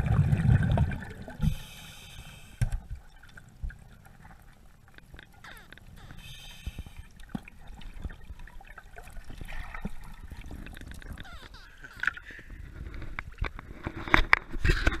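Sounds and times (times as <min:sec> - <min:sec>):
water gurgling underwater: 0:00.0 - 0:01.5, 0:07.3 - 0:12.2
small clicks underwater: 0:00.3 - 0:15.0.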